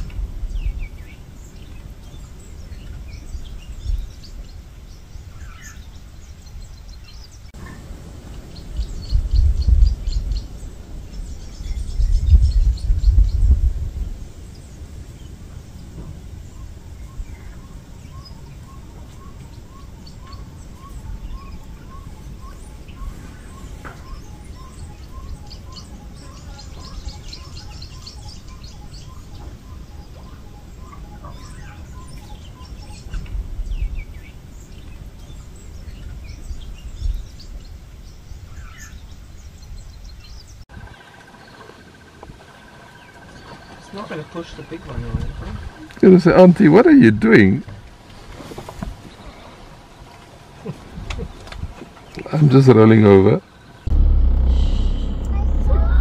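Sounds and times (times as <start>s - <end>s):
birds chirping and calling: 0.5s - 13.6s, 14.5s - 46.8s
low rumble: 53.8s - 56.0s
steady high tone: 53.9s - 56.0s.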